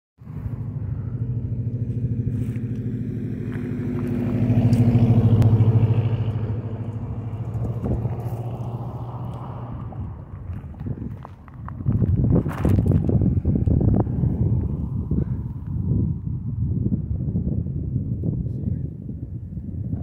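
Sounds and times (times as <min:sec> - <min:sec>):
vehicle engine running: 0:00.2 - 0:19.8.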